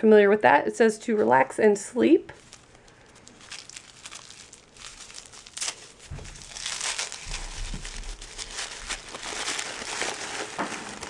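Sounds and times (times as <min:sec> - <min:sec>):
tissue paper crinkling: 0:02.4 - 0:11.0.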